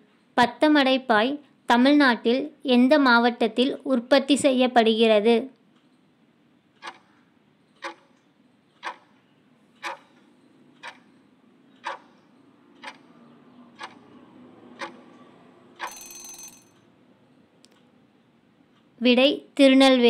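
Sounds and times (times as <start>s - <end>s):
timer ticking: 6.7s - 17.0s
short ringing: 15.8s - 16.8s.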